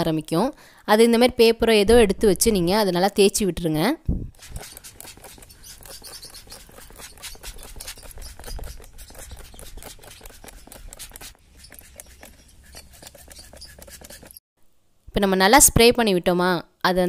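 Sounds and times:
spray bottle squirting: 0:04.3 - 0:14.4.

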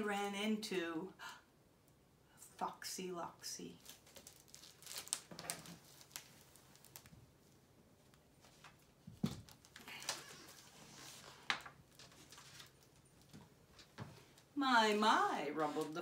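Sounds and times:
picture book rustling: 0:03.7 - 0:16.0.

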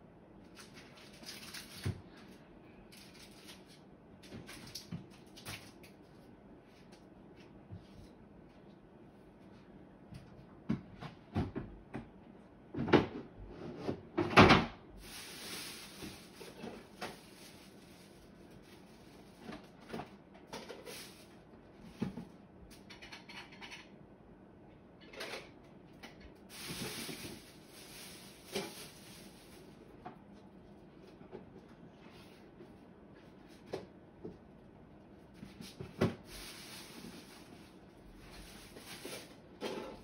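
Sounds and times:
knocks and clunks of stored things: 0:10.1 - 0:14.8, 0:21.8 - 0:23.8
rustling: 0:15.0 - 0:19.5, 0:26.5 - 0:29.8, 0:36.2 - 0:39.4.

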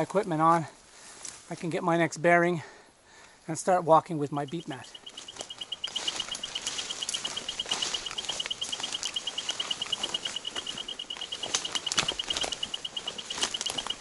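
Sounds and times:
rapid short high beeps: 0:04.5 - 0:14.0
footsteps through undergrowth: 0:04.6 - 0:14.0.

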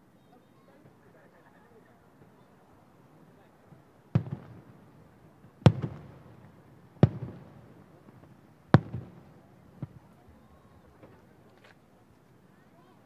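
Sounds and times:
distant firework bangs: 0:03.7 - 0:11.4.

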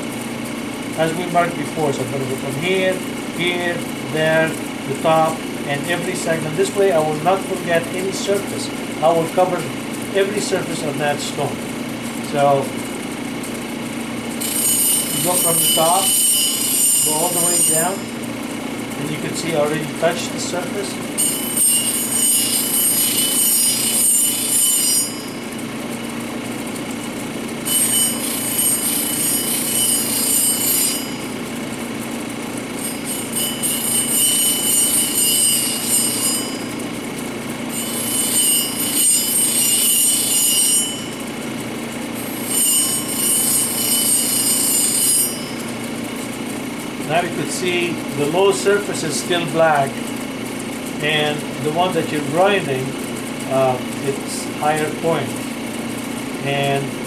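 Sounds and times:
machine hum: 0:00.0 - 0:57.0
stone grinding hiss: 0:32.8 - 0:36.6.

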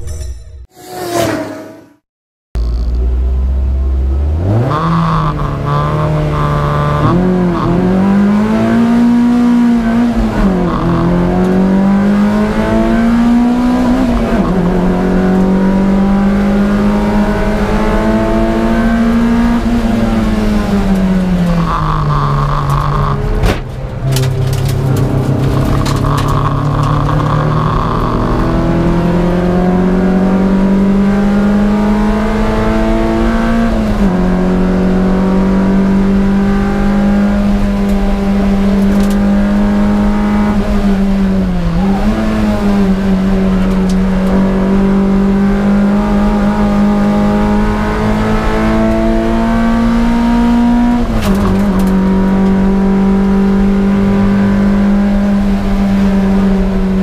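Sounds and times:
race car engine accelerating: 0:02.6 - 0:57.0.

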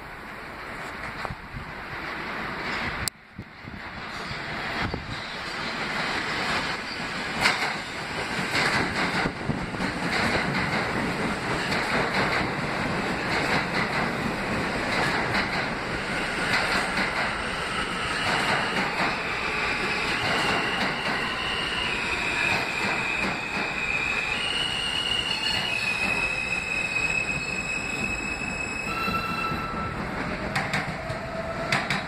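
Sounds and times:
subway train rumble and clatter: 0:00.0 - 0:32.0
train brakes high-pitched squeal: 0:04.0 - 0:05.9, 0:06.7 - 0:07.2, 0:16.1 - 0:30.5.

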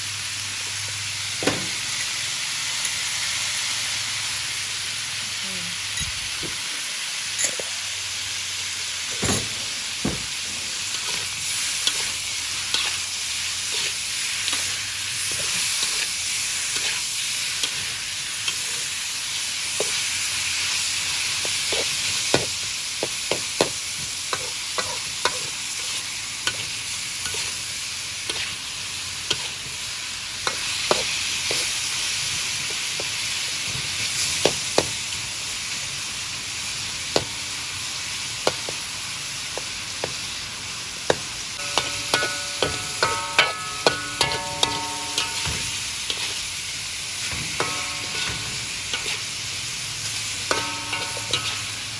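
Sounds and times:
meat sizzling in hot fat: 0:00.0 - 0:51.9
metal spatula scraping a pan: 0:10.5 - 0:19.0, 0:23.6 - 0:28.6, 0:29.2 - 0:29.7, 0:41.6 - 0:46.5, 0:47.2 - 0:51.9.

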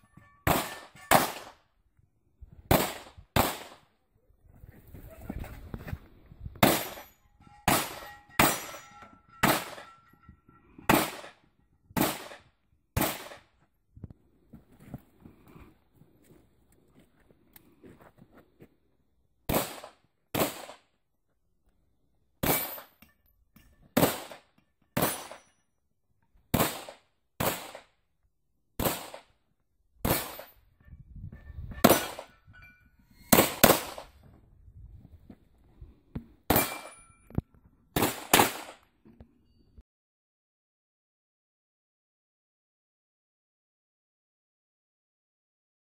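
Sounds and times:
pistol shots: 0:00.5 - 0:01.6, 0:02.7 - 0:03.9, 0:06.6 - 0:07.0, 0:10.9 - 0:11.3, 0:12.0 - 0:12.4, 0:13.0 - 0:13.4, 0:19.5 - 0:20.8, 0:26.5 - 0:27.9, 0:28.8 - 0:29.3, 0:33.3 - 0:34.1, 0:38.0 - 0:38.8.

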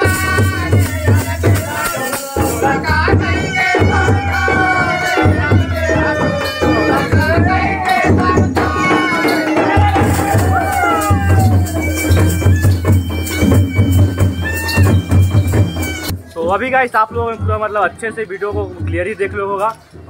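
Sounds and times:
drum beats: 0:00.0 - 0:20.0
jingling rattles: 0:00.0 - 0:20.0
wavering melody line: 0:03.0 - 0:16.4.

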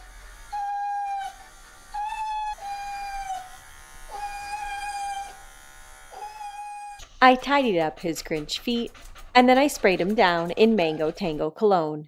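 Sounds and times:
electric clipper buzz: 0:00.0 - 0:07.1
dog whining: 0:00.5 - 0:07.0.

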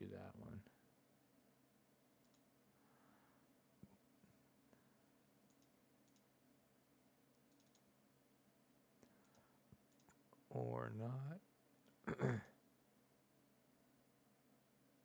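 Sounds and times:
faint computer mouse clicks: 0:02.2 - 0:02.5, 0:05.4 - 0:06.3, 0:07.3 - 0:07.9, 0:09.0 - 0:10.2.

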